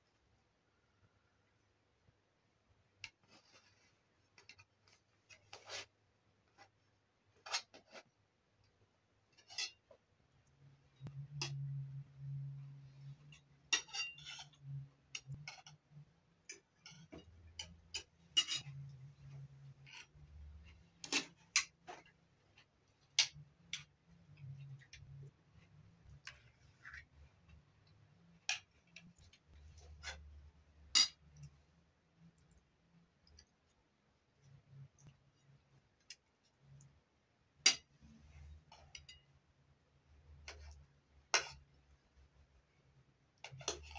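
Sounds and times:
low steady hum: 0:10.0 - 0:43.9
cutlery clinking on metal platters: 0:13.8 - 0:14.6, 0:16.8 - 0:18.8, 0:30.9 - 0:31.2.

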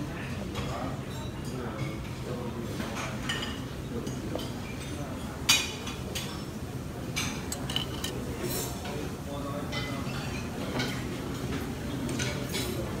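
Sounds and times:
metal tongs clinking on a plate: 0:03.0 - 0:09.0, 0:12.1 - 0:13.0.

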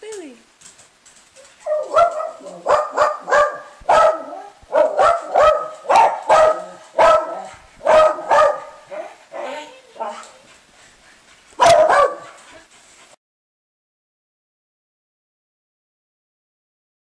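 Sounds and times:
small dog barking: 0:01.4 - 0:10.3, 0:11.6 - 0:12.4.

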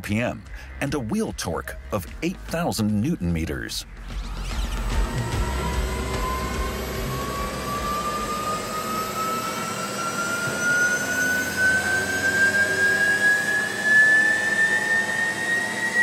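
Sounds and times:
low rumble: 0:03.8 - 0:09.2
electric motor whine rising: 0:03.9 - 0:16.0.

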